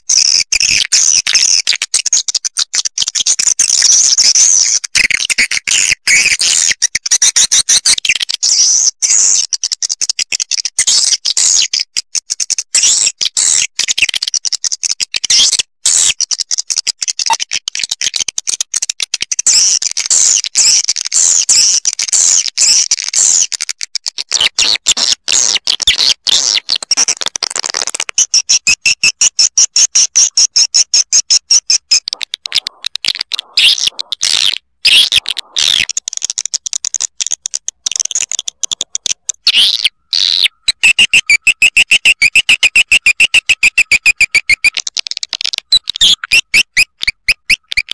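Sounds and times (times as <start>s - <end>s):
swiftlet twittering chirps: 29.9s - 35.9s, 37.9s - 44.8s.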